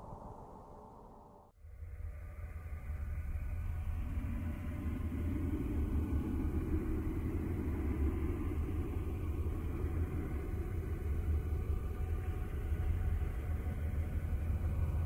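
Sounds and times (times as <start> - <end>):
deep steady rumble: 0.0 - 15.0.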